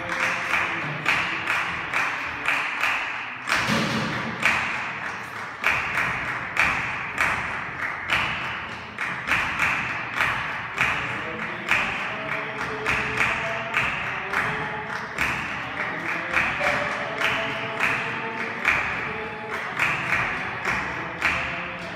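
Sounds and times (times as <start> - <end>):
people clapping in rhythm: 0.0 - 21.9.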